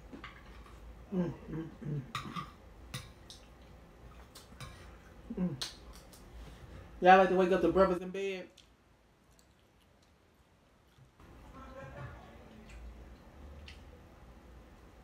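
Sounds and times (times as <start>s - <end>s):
person humming: 1.1s - 2.1s, 5.3s - 5.7s.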